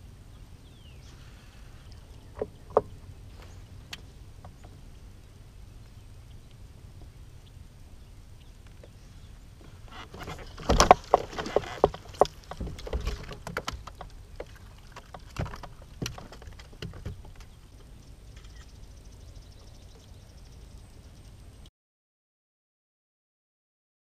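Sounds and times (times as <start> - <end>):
water splashing: 9.5 - 17.9.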